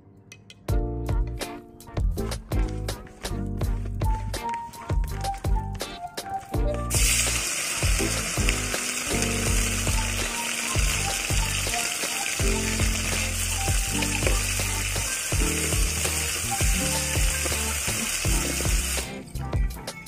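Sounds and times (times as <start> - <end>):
music playing: 0.0 - 20.0
meat sizzling in hot oil: 6.9 - 19.2.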